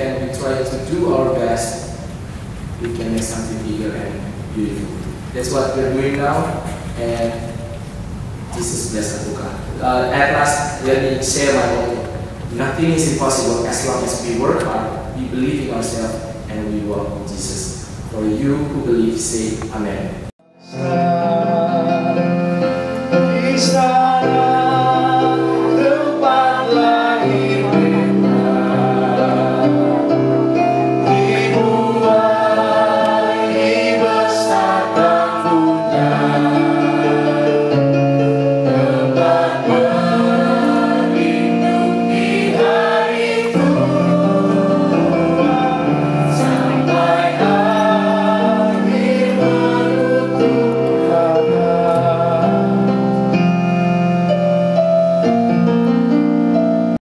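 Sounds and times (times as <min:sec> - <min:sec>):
choir singing: 0:20.6 - 0:53.1.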